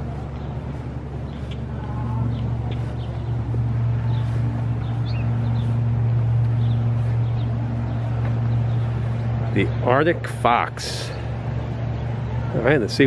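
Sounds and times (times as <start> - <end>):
steady low hum: 0.0 - 13.0
bird chirps: 1.2 - 9.3.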